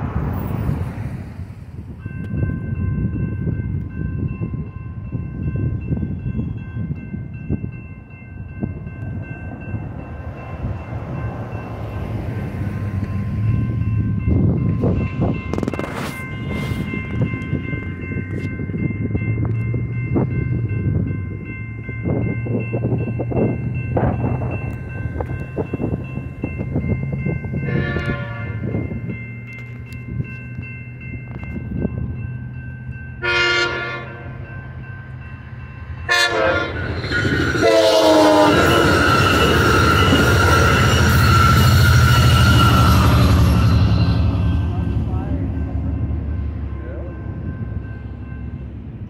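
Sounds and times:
railroad crossing bell ringing: 0.0 - 49.0
train rushing across crossing: 0.0 - 49.0
train horn blasts: 27.6 - 28.8, 33.2 - 34.4, 36.0 - 44.9.

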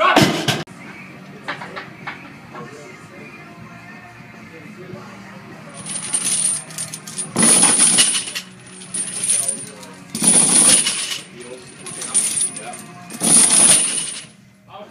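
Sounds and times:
steel chains clanking and rattling: 5.8 - 14.4.

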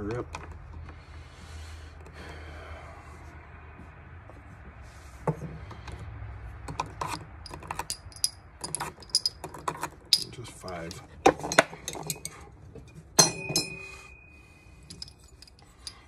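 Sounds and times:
cartridges clicking and clinking: 7.0 - 12.4, 14.9 - 16.0
low steady hum: 10.1 - 16.0.

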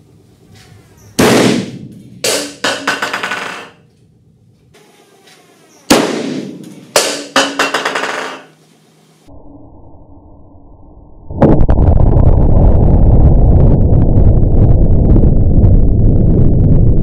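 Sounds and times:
sharp explosion bang: 1.2 - 3.5, 5.9 - 7.2.

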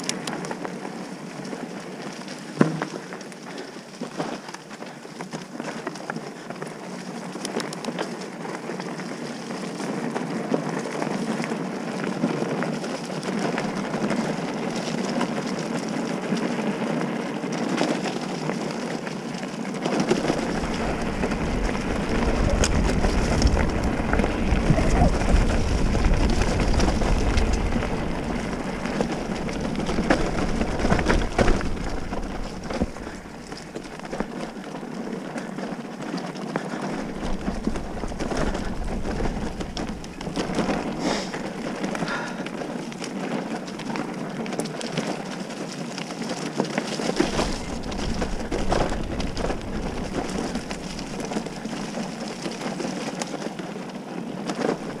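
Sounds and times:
bicycle tyres rolling on dirt: 0.0 - 55.0
bike clicks and rattles: 0.0 - 55.0
low rumble: 20.5 - 34.3.

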